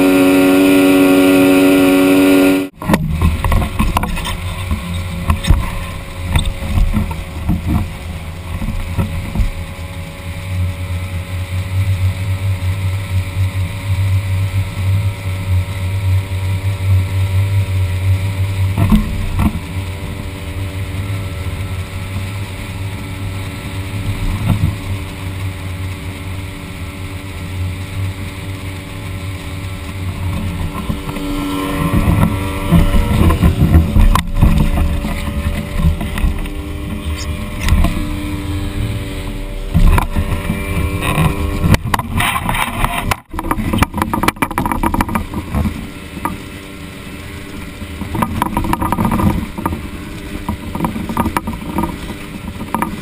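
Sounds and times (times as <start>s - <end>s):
outboard motor running: 0.0s - 53.0s
water rushing along hull: 0.0s - 53.0s
sharp knocks and clatter: 2.8s - 9.6s, 39.7s - 46.4s, 48.0s - 53.0s.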